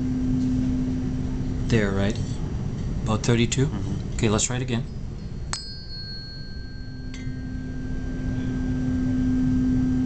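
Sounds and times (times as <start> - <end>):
tuning fork steady hum: 0.0 - 2.4, 4.4 - 10.0
tuning fork metallic ping: 4.8 - 10.0.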